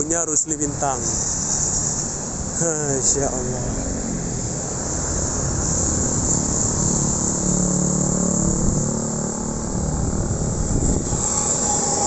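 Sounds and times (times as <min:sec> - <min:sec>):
steady high hiss: 0:00.0 - 0:08.3.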